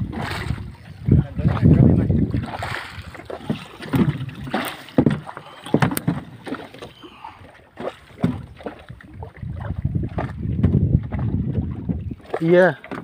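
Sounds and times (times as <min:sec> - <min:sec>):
wind on microphone: 0:00.0 - 0:06.2, 0:06.8 - 0:12.6
water slapping against boat hull: 0:00.0 - 0:13.0.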